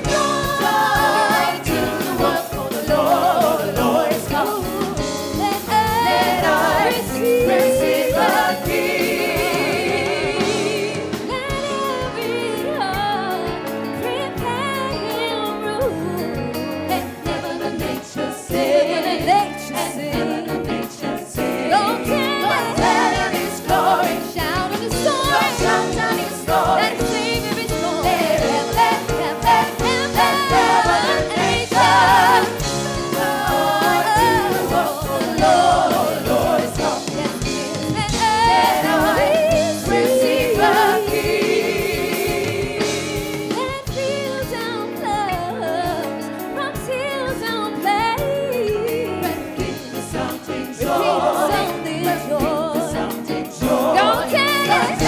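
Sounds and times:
backing choir singing: 0.0 - 15.0, 15.8 - 46.0, 47.8 - 55.0
band with bass and keyboards: 0.0 - 55.0
woman singing into a microphone: 11.2 - 18.0, 43.6 - 49.4.

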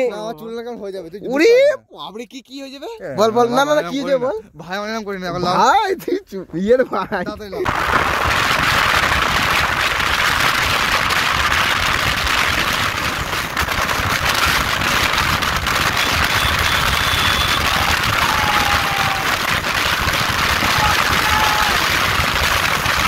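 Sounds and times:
wind rushing over microphone: 7.7 - 19.5.

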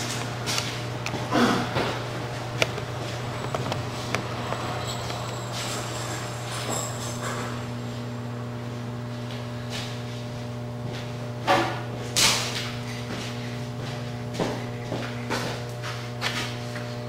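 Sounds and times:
low electrical hum: 0.0 - 17.0
clattering knocks: 1.7 - 7.7.

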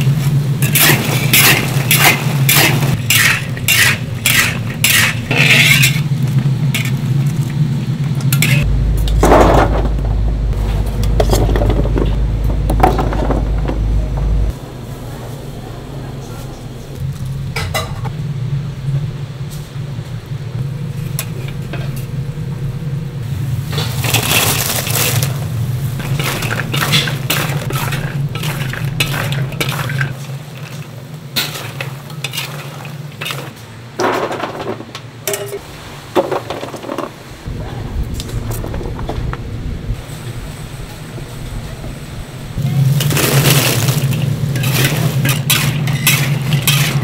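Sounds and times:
steady low hum: 0.0 - 34.0
metal spatula scraping a cauldron: 0.6 - 7.0, 8.3 - 8.7, 25.9 - 33.7, 42.9 - 47.0.

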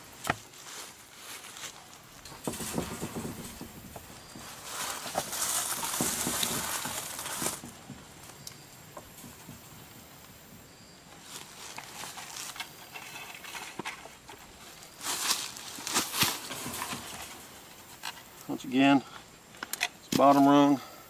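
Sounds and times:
wire rustling and scraping: 0.0 - 10.4, 11.1 - 20.6.

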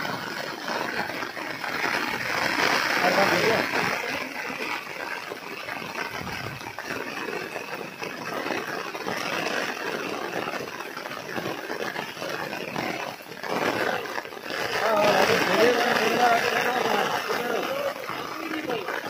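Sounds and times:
heavy rain hiss: 0.0 - 19.0.

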